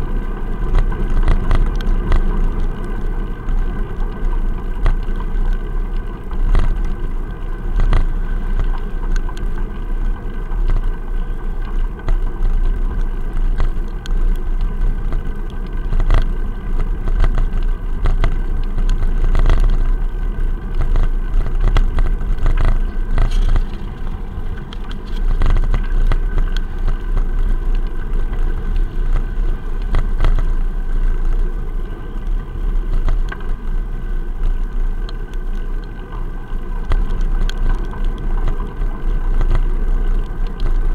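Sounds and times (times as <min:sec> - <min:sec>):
road vibration: 0:00.0 - 0:40.9
wind rumble: 0:00.0 - 0:40.9.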